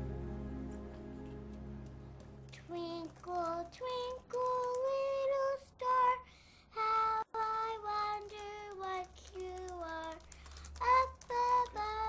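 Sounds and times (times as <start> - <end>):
girl singing: 2.5 - 12.0.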